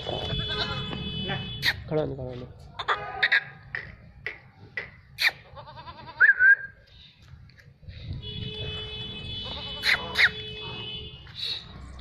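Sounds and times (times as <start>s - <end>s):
goat bleating: 0.0s - 1.0s, 5.2s - 6.4s, 9.4s - 10.4s.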